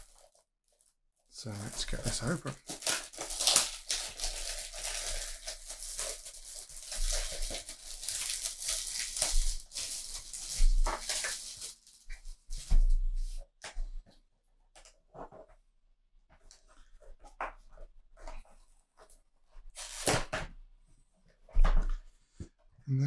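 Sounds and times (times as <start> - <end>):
cardboard and foil tearing: 0.0 - 12.8, 19.8 - 20.3.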